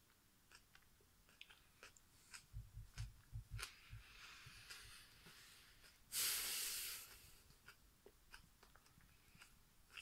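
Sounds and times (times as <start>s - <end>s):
person chewing: 0.0s - 10.0s
breath out through nose: 3.9s - 7.4s.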